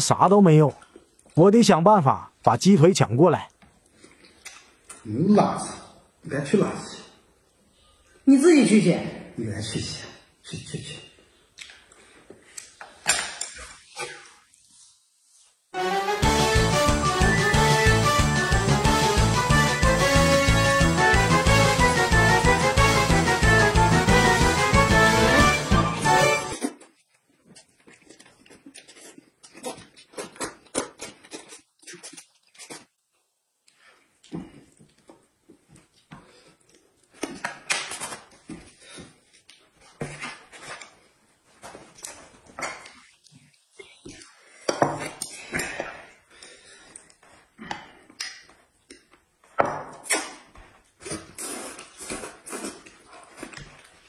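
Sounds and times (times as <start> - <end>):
man chewing with wet smacking: 26.6 - 37.8, 41.9 - 45.4, 46.7 - 54.0.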